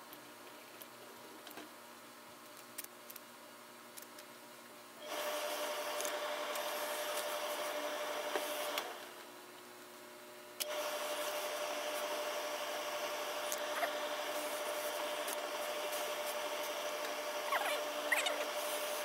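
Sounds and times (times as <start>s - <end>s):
steam press hissing and humming: 5.0s - 9.2s, 10.6s - 19.0s.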